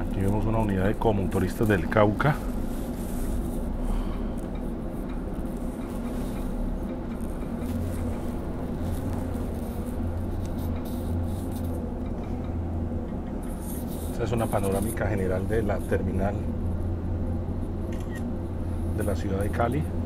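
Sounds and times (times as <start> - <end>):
bus engine drone: 0.0 - 20.0.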